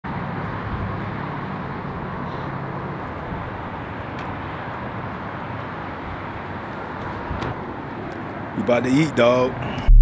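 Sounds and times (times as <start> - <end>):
traffic rumble: 0.1 - 10.0.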